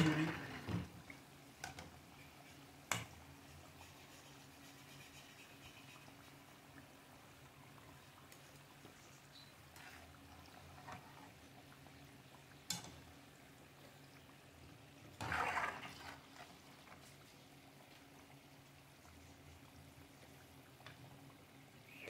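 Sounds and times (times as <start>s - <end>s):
spatula working in a pan: 0.0s - 11.6s, 12.6s - 13.1s, 15.0s - 18.0s
pancakes sizzling in hot oil: 0.0s - 22.0s.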